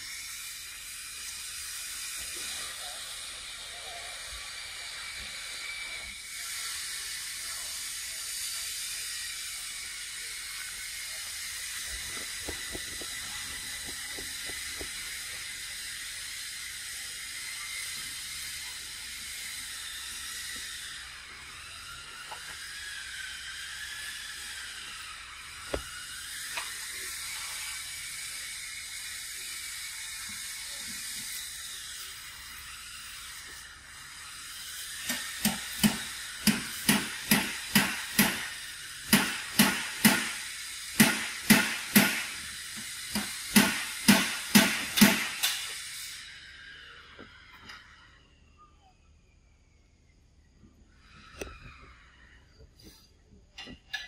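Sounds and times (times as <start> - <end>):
high-pitched hiss: 0.0 - 54.0
faint wavering squeaks: 45.8 - 54.0.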